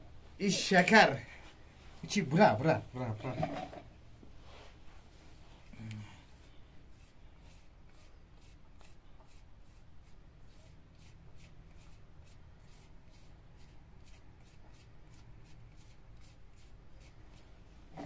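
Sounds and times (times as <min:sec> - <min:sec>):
faint rhythmic scraping: 0:01.8 - 0:05.7.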